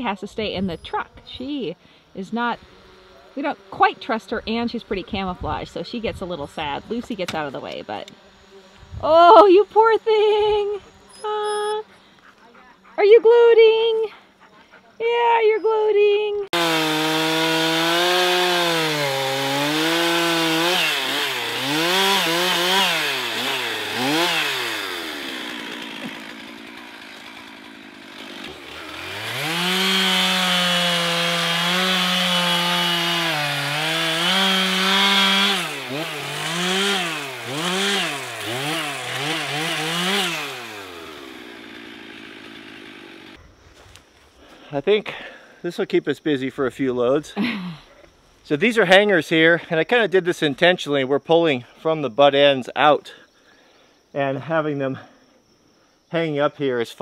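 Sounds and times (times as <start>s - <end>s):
chainsaw cutting into tree: 2.4s - 4.3s, 6.6s - 8.8s, 16.5s - 43.4s.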